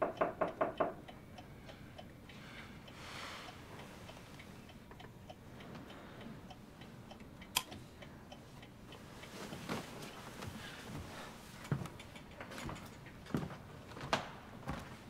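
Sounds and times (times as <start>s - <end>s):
clock ticking: 0.0s - 10.3s.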